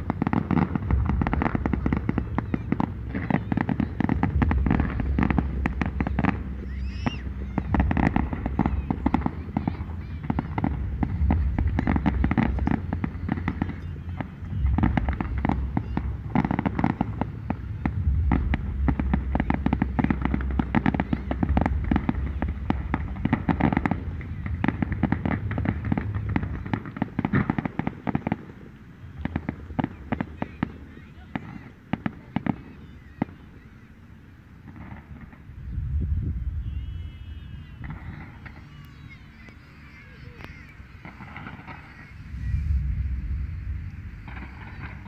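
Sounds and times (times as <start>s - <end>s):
low rumble: 0.0s - 27.3s, 35.5s - 36.9s, 42.0s - 45.0s
fireworks crackling and popping: 0.0s - 45.0s.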